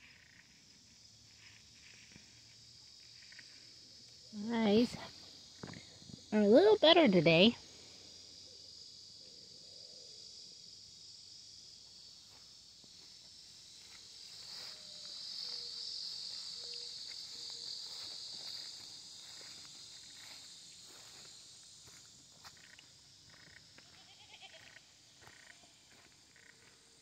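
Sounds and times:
insects buzzing: 0.0 - 27.0
footsteps: 17.1 - 22.8.

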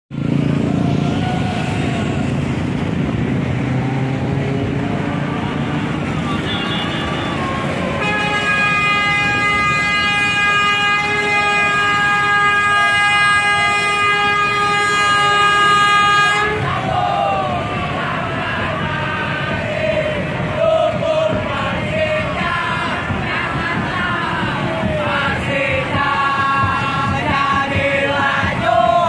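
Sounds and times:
motorbikes passing: 0.1 - 29.0
street traffic: 0.1 - 29.0
long loud horn blast: 5.0 - 17.1.

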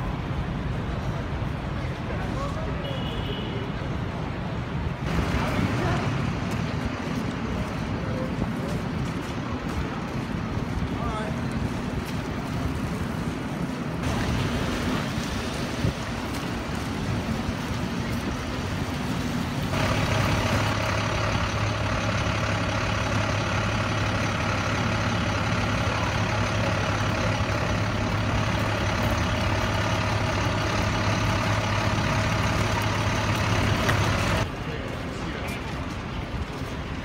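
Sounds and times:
street traffic: 0.0 - 37.0
low engine hum: 5.0 - 34.5.

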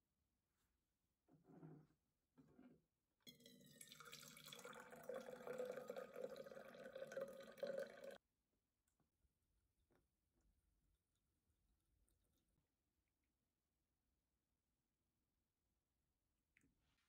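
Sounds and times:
tea pouring into metal tumbler: 3.3 - 8.2.

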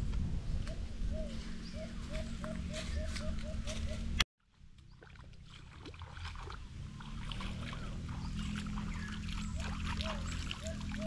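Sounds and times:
flowing river water: 4.5 - 11.0.

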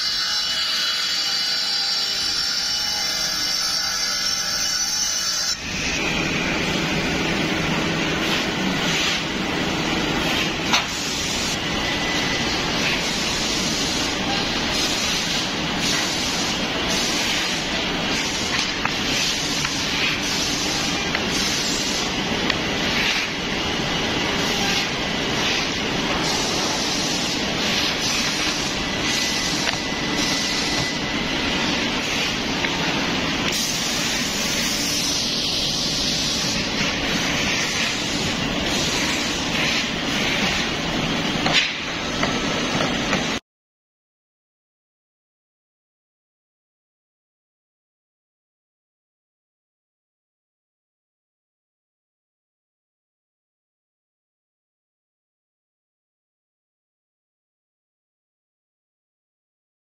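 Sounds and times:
woodworking machinery running: 0.1 - 43.4.

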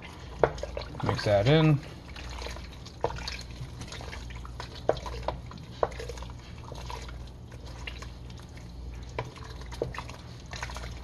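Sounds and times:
soup sloshing in a pot: 0.0 - 11.0
steady low hum: 0.0 - 11.0.

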